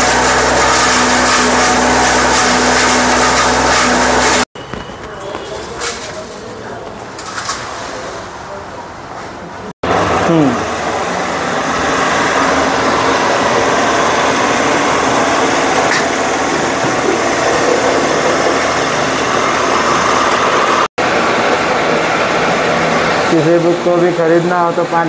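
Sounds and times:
electric spice mill grinding: 0.0 - 4.5, 11.0 - 23.4.

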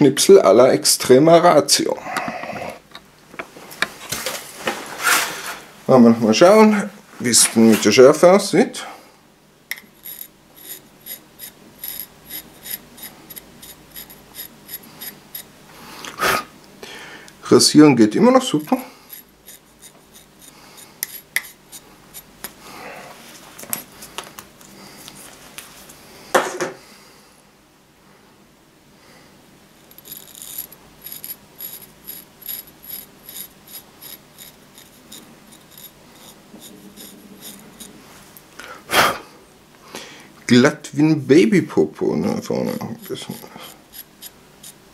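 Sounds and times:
knife shaving arm hair: 10.0 - 15.5, 19.1 - 22.6, 29.9 - 38.0, 42.6 - 44.8.

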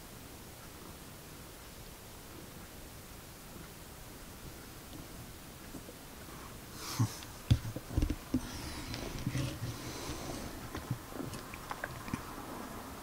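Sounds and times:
cat purring: 4.4 - 13.0.

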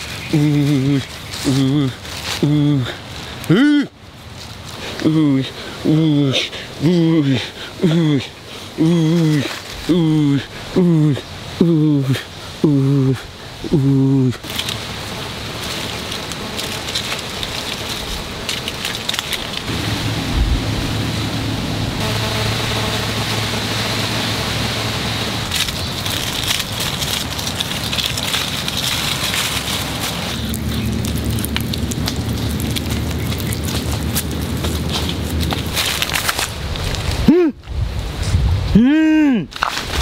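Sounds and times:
turtle crawling over dry leaves: 0.0 - 7.1, 7.7 - 21.2, 22.0 - 37.3
steady high hiss: 5.2 - 36.7
low rumble: 19.5 - 35.9.

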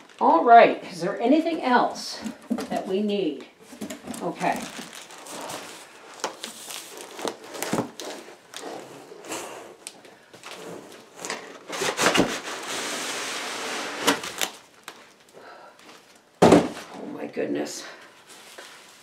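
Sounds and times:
cardboard and packing scraping: 3.6 - 9.8, 10.4 - 14.6
cardboard box knocks and thuds: 16.4 - 16.8.

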